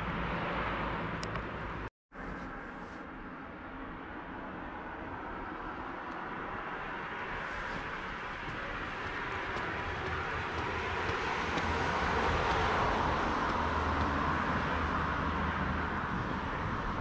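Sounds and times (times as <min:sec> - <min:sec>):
passing vehicle rumble: 0:00.0 - 0:17.0.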